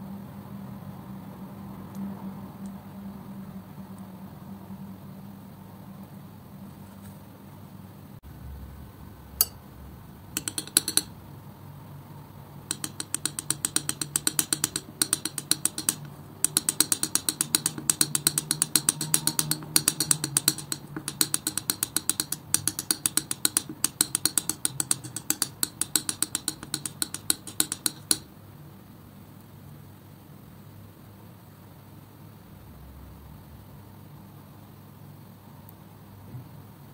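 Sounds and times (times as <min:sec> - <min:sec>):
palette knife clicking in paint: 0:10.4 - 0:11.2, 0:12.7 - 0:28.3.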